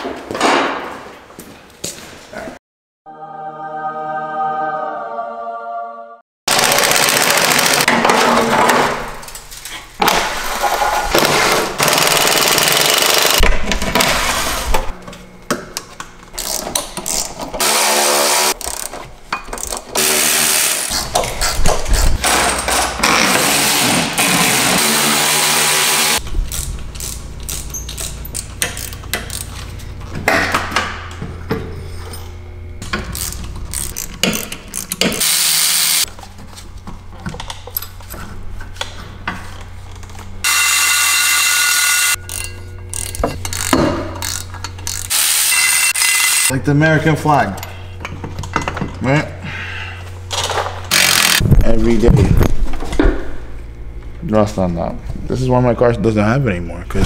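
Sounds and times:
impact wrench hammering: 0:11.2 - 0:13.7, 0:41.5 - 0:46.5
hand tools clinking and ratcheting: 0:26.5 - 0:29.7, 0:42.1 - 0:45.1.

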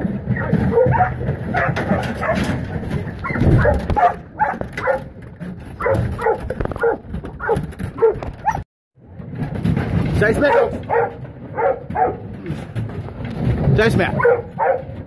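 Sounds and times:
dog barking: 0:00.3 - 0:02.6, 0:03.2 - 0:05.1, 0:05.8 - 0:08.6, 0:10.4 - 0:12.3, 0:14.1 - 0:15.0.

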